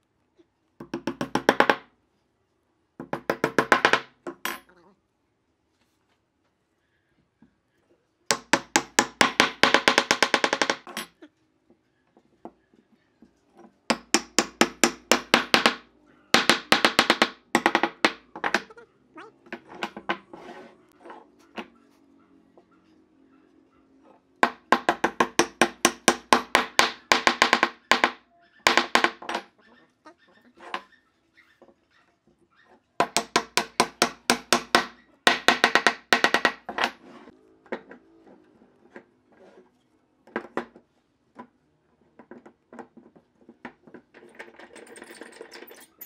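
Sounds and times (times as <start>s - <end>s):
hammer tapping wooden blocks: 0.8s - 1.9s, 3.0s - 4.6s, 8.3s - 10.9s, 13.9s - 18.7s, 24.4s - 29.5s, 33.0s - 37.0s.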